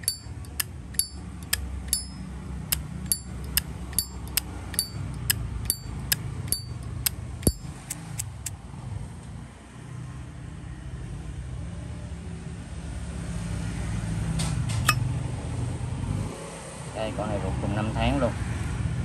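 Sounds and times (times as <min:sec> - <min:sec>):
lighter lid clicking open and shut: 0:07.4 - 0:08.5.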